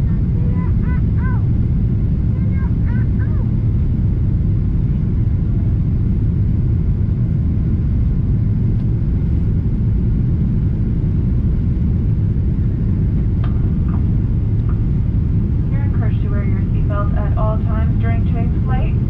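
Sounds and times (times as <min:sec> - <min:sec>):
airplane cabin engine rumble: 0:00.0 - 0:19.0.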